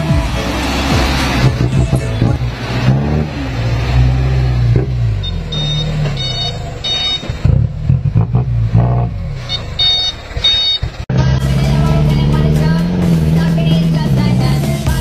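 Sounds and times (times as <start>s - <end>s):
diesel truck engine revving: 0.0s - 15.0s
short high beeps: 5.2s - 7.4s, 9.4s - 10.9s.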